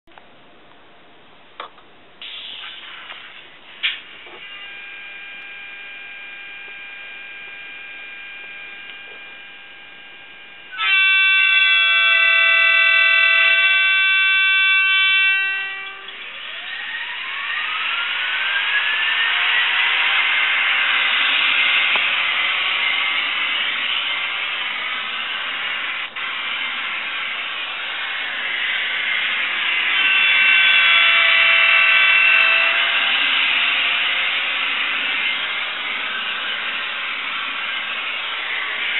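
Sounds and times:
electric train idle hum: 0:00.1 - 0:38.9
rising motor whine: 0:04.1 - 0:38.9
train horn blast: 0:10.7 - 0:16.4.

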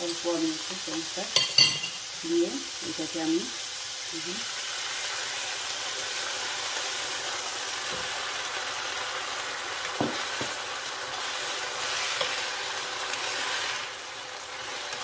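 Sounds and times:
vegetables sizzling in a hot pan: 0:00.0 - 0:15.0
spoon knocking against pan: 0:10.0 - 0:10.6.

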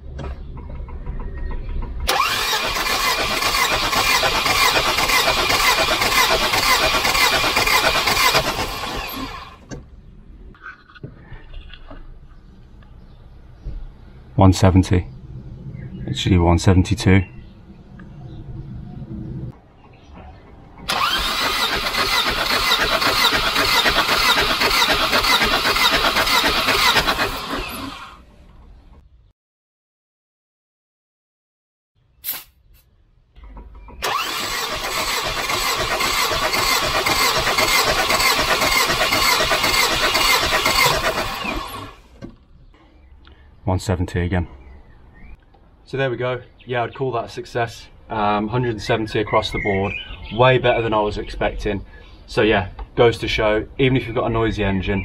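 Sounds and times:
starter motor cranking engine: 0:02.1 - 0:09.7, 0:20.8 - 0:28.2, 0:33.5 - 0:42.2.

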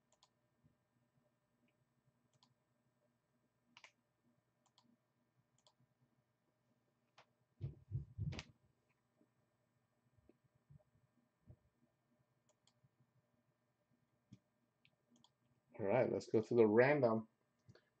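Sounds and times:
computer mouse clicks: 0:00.1 - 0:00.4, 0:02.3 - 0:02.6, 0:03.8 - 0:04.0, 0:04.6 - 0:05.0, 0:05.6 - 0:05.8, 0:12.5 - 0:12.8, 0:14.3 - 0:15.4.

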